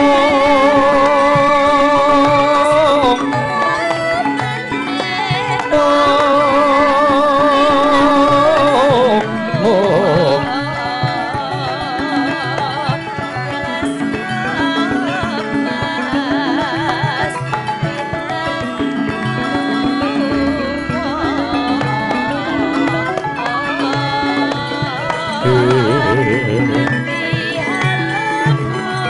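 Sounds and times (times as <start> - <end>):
person singing long notes: 0.0 - 12.7, 19.3 - 29.0
ringing metallophones: 2.2 - 29.0
drum strokes: 18.9 - 27.1.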